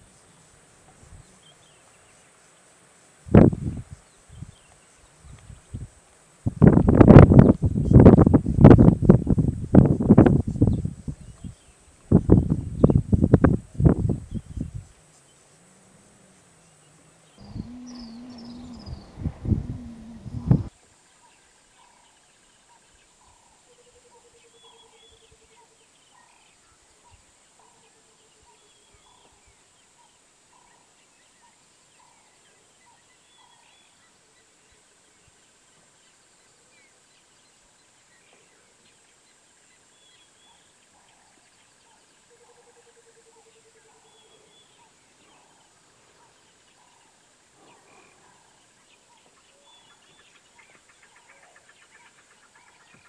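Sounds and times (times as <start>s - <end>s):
birds calling: 16.3s - 20.7s
high-pitched insect drone: 17.4s - 20.7s
rapid low trill: 17.4s - 20.7s.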